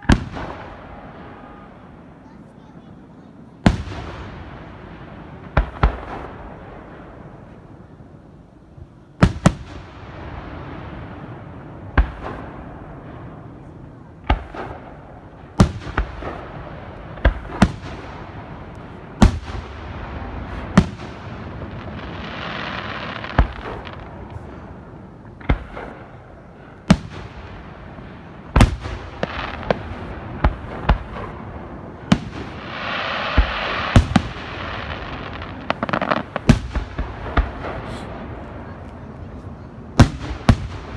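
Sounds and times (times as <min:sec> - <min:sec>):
firework booms with rumbling echo: 0:00.0 - 0:40.9
hissing crackle: 0:09.4 - 0:40.9.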